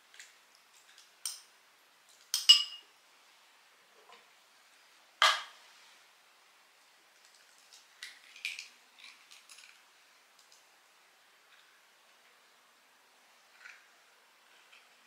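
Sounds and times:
eggshell crackling: 7.2 - 10.7.

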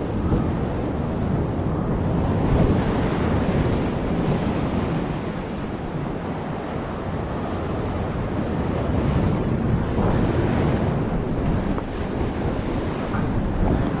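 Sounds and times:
surf washing through rocks: 0.0 - 14.0
wind buffeting microphone: 0.0 - 14.0.

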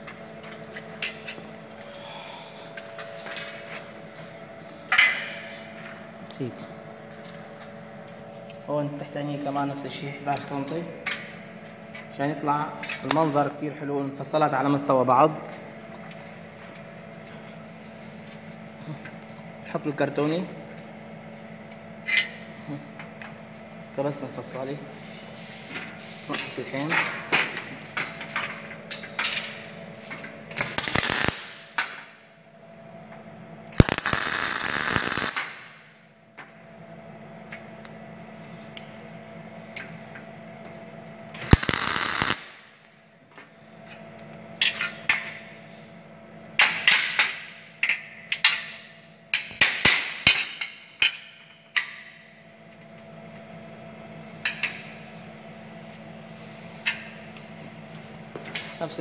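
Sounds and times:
steady low hum: 0.0 - 59.0
welding arc crackling: 30.5 - 32.1, 33.7 - 36.1, 41.3 - 43.0.

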